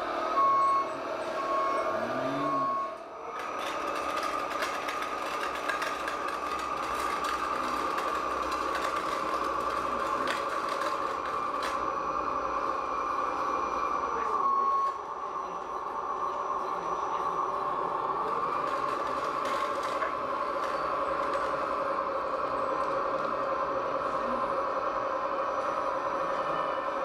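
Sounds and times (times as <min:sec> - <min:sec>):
small motors whining: 0:00.3 - 0:27.0
short beep: 0:01.4 - 0:02.9.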